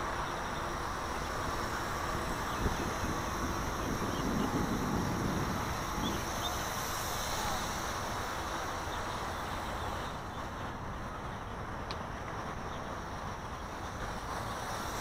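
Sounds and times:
wind buffeting microphone: 1.6 - 7.8.

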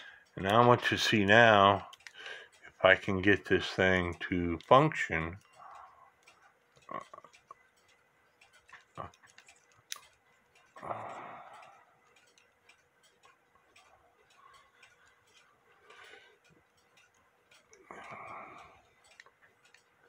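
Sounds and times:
clock movement clicking: 0.0 - 20.0.

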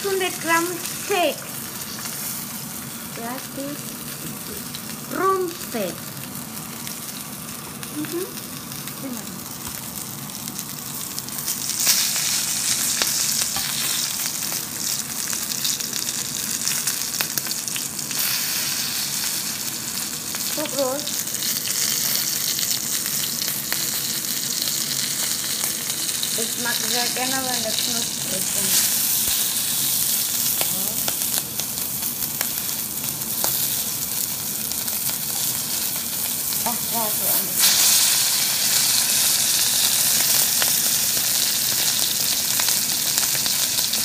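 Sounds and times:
fat spattering crackles: 0.0 - 44.0
steak sizzling in hot oil: 0.0 - 44.0.

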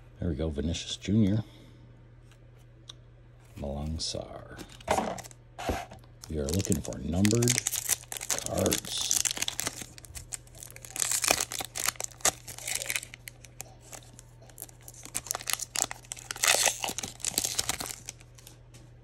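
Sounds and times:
foil wrapper tearing and crinkling: 4.7 - 5.3, 6.2 - 18.5.

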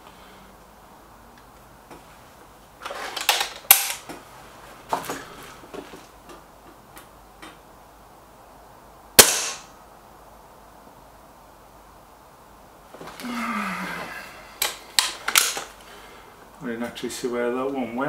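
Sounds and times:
air rifle handling clicks and knocks: 2.8 - 4.2, 14.6 - 15.7
air rifle shot: 9.2 - 9.8.

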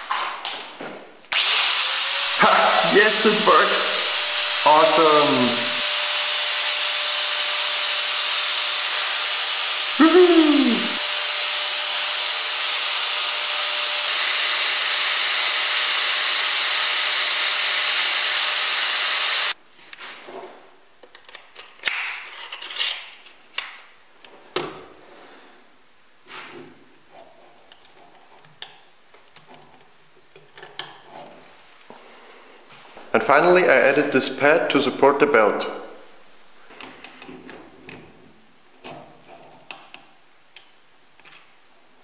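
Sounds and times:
angle grinder running: 1.3 - 19.6
person exclaiming: 2.4 - 3.8, 4.7 - 5.7, 10.0 - 11.0.

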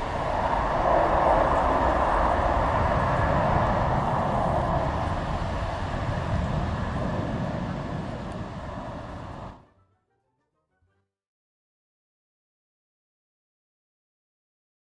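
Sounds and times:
jet engine roar at takeoff: 0.0 - 9.7.

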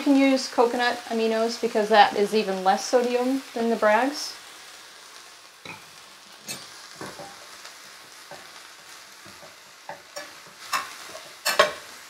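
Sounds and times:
vegetables sizzling in a pan: 0.0 - 12.0
spatula scraping and knocking pan: 5.6 - 7.6, 9.2 - 12.0.

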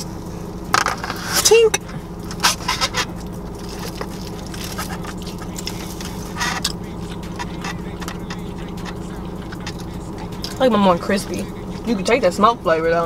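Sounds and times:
car interior hum: 0.0 - 13.0
chewing chicken wings: 3.2 - 10.6.

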